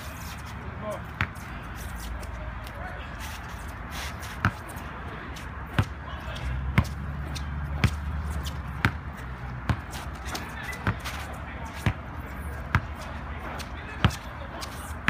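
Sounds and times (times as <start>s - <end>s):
basketball bouncing on wet asphalt: 4.4s - 4.6s, 5.7s - 6.0s, 6.7s - 11.1s, 11.8s - 13.0s, 13.7s - 14.3s.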